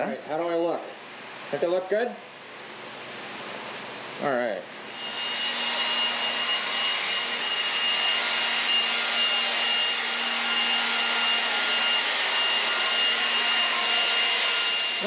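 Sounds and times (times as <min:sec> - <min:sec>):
leaf blower running: 0:04.9 - 0:15.0.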